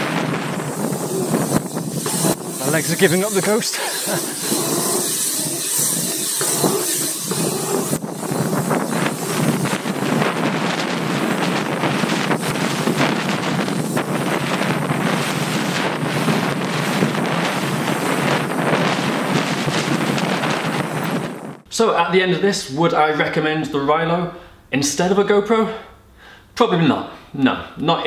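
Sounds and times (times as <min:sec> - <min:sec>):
wind buffeting microphone: 0:00.0 - 0:21.7.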